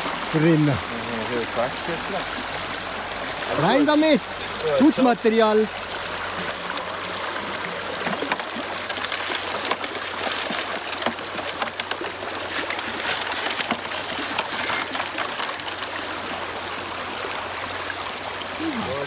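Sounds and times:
water running through sluice box: 0:00.0 - 0:19.0
stones clattering against metal: 0:08.1 - 0:15.6.

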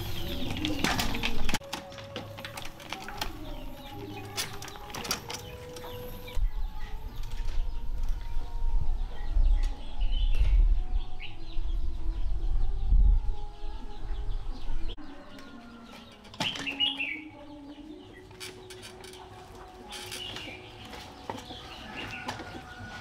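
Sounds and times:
birds chirping: 0:00.0 - 0:23.0
low rumble: 0:06.4 - 0:15.0.

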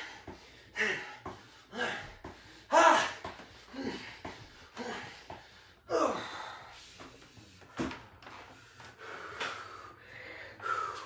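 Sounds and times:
man breathing hard and grunting: 0:00.0 - 0:07.5, 0:08.8 - 0:11.0.

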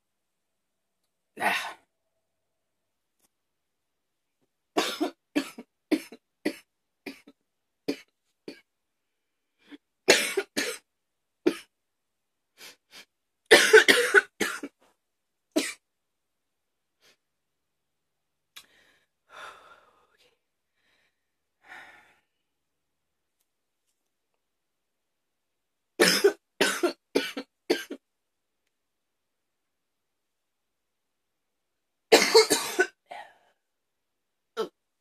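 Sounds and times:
woman coughing: 0:04.8 - 0:06.2, 0:10.1 - 0:10.8, 0:13.5 - 0:14.7, 0:26.0 - 0:28.0, 0:32.1 - 0:33.0
faint breaths: 0:18.6 - 0:22.5.

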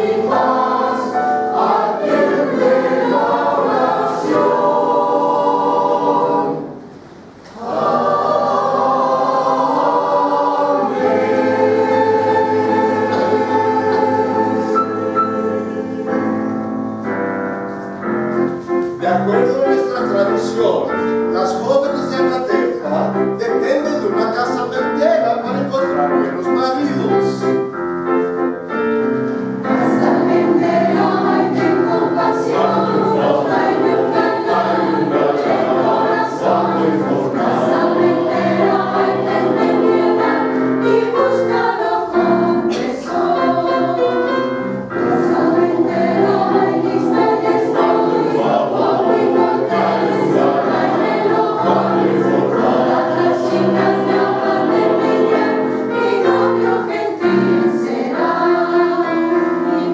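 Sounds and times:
mixed choir singing: 0:00.0 - 0:17.3, 0:29.6 - 0:59.9
piano accompaniment: 0:00.0 - 0:59.9.

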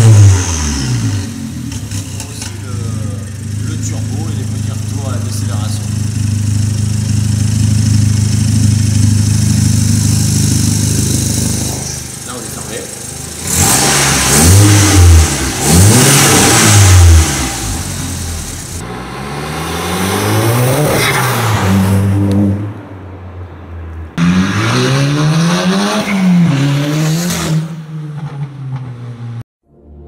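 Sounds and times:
car engine revving: 0:00.0 - 0:29.4.

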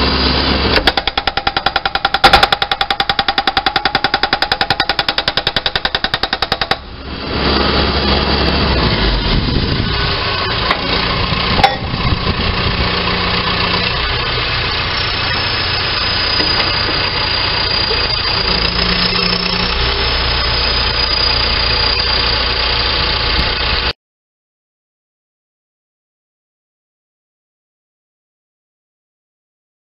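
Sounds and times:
diesel engine running: 0:00.0 - 0:23.9.

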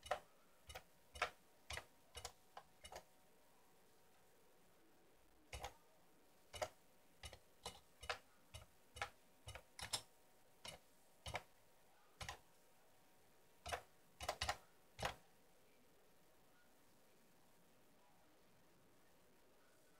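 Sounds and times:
keyboard keystrokes clicking: 0:00.0 - 0:03.1, 0:06.6 - 0:10.1, 0:12.2 - 0:12.4, 0:13.7 - 0:15.2.

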